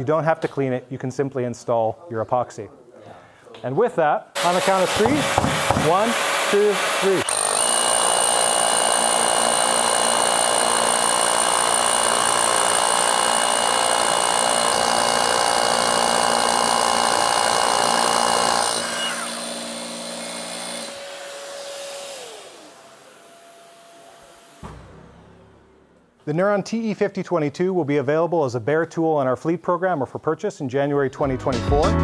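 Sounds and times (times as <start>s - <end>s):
dust extraction vacuums: 4.4s - 7.3s
rotary hammers drilling into concrete: 4.4s - 21.3s
motor winding down: 6.1s - 21.0s.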